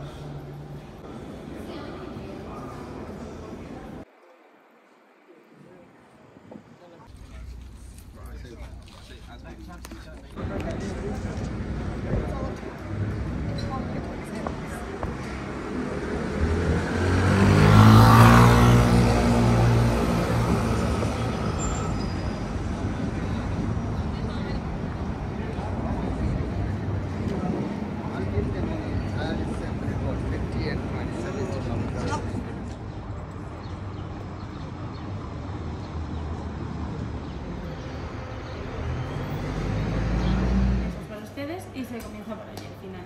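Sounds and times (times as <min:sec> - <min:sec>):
city ambience with low rumble: 0:00.0 - 0:43.0
vehicle driving past: 0:15.0 - 0:23.7, 0:36.8 - 0:41.1.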